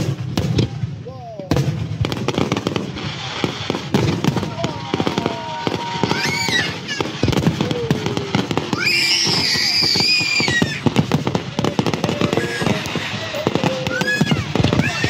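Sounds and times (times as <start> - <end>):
fireworks bangs and crackling: 0.0 - 15.0
shrill wavering whistle: 8.7 - 10.8.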